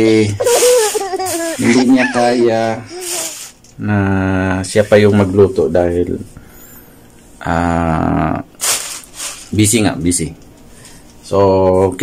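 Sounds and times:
man saying ehh: 0:01.6 - 0:04.4, 0:07.4 - 0:08.5.

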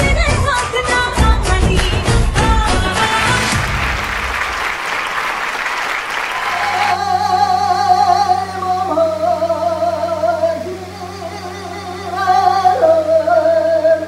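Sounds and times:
applause: 0:03.0 - 0:07.0
steady low hum: 0:06.0 - 0:14.0.

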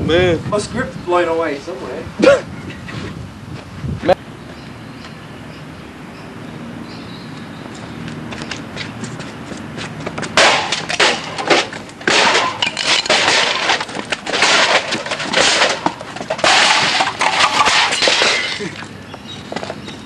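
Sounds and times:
loud crunching and crashing: 0:10.2 - 0:18.9.

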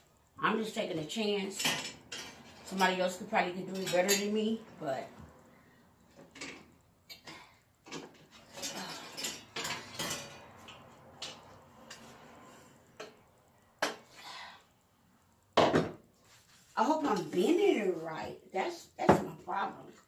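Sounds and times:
metallic clinks and scrapes: 0:01.5 - 0:04.6, 0:07.9 - 0:13.2.

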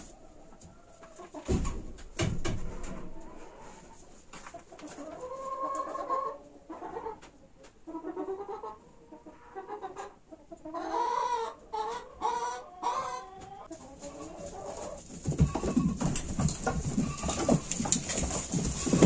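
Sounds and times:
poultry calling: 0:07.9 - 0:19.0.

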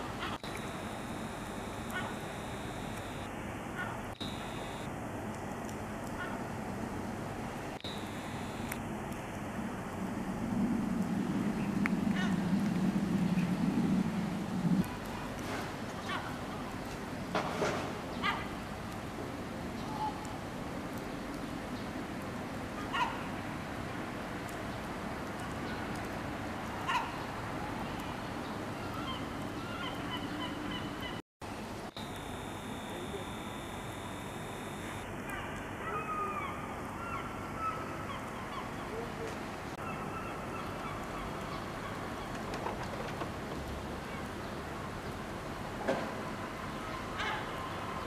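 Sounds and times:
steady background hiss: 0:00.0 - 0:11.7, 0:31.5 - 0:42.1
steady background noise: 0:00.0 - 0:48.0
gull calling: 0:00.2 - 0:04.9, 0:32.0 - 0:35.1.

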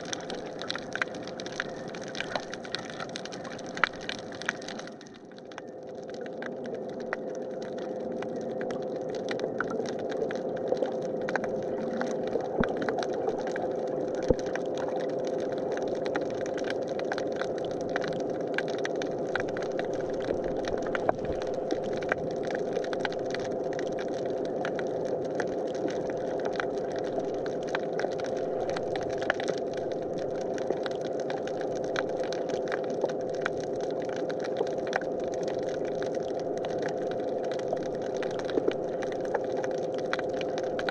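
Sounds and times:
crackle of sharp clicks: 0:00.0 - 0:40.9
underwater steady hum: 0:00.0 - 0:40.9.

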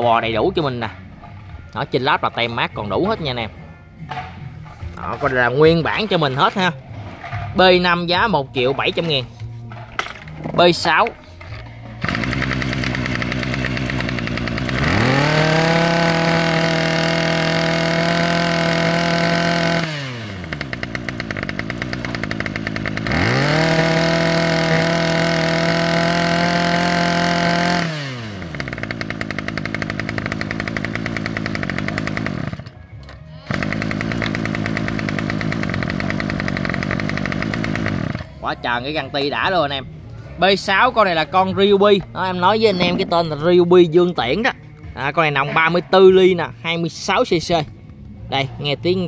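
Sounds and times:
brush-cutter engine revving: 0:10.4 - 0:32.8, 0:33.4 - 0:38.4.

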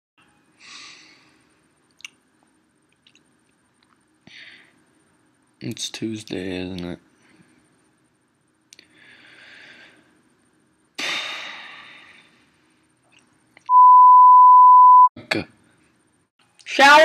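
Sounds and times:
censor bleep: 0:13.7 - 0:15.1.

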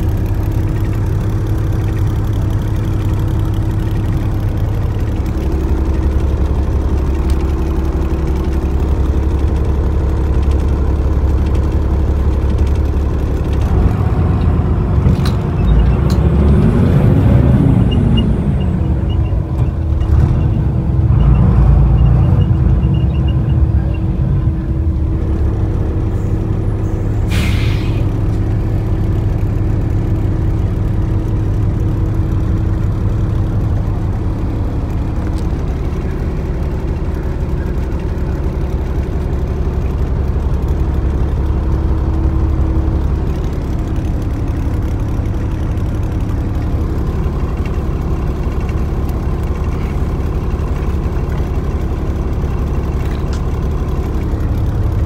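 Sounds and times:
bus engine and road rumble: 0:00.0 - 0:55.0
brief hiss: 0:27.2 - 0:28.1.

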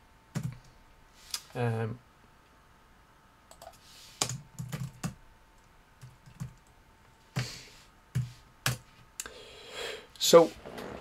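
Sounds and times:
keyboard typing: 0:03.5 - 0:06.7.

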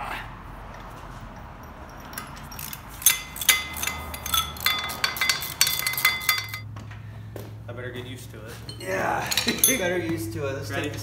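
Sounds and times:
wrench clinking on metal housing: 0:00.7 - 0:06.7, 0:08.7 - 0:10.1.

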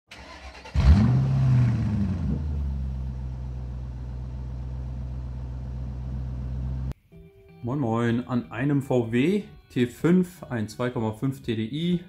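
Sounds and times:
car engine starting and idling: 0:00.1 - 0:07.0.

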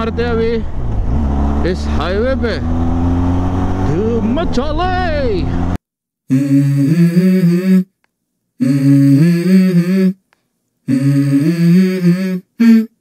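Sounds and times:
person humming a melody: 0:06.3 - 0:08.0, 0:08.6 - 0:13.0.

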